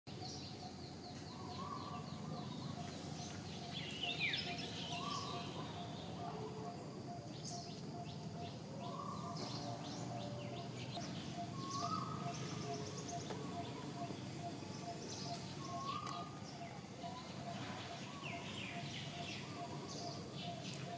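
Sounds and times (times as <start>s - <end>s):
birds chirping: 0.1s - 20.9s
bird sweeping call: 8.8s - 20.9s.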